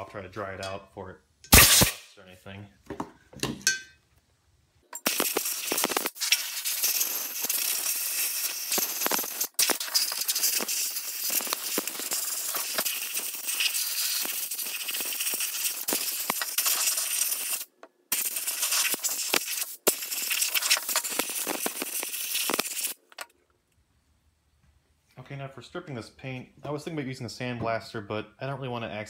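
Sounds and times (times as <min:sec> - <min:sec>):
compressed air blow gun hissing: 0:05.1 - 0:23.0.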